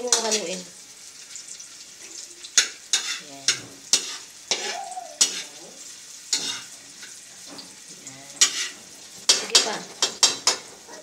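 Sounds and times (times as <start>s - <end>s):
hot oil sizzling: 0.0s - 11.0s
metal spatula scraping a wok: 2.6s - 10.9s.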